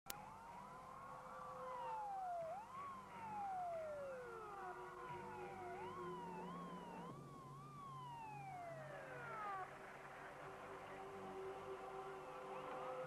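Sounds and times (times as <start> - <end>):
sirens wailing: 0.2 - 10.5.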